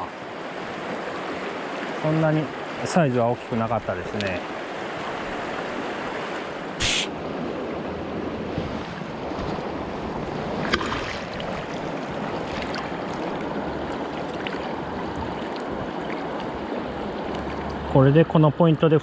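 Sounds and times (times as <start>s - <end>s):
river current rushing: 0.0s - 19.0s
short burst of hiss: 6.8s - 7.1s.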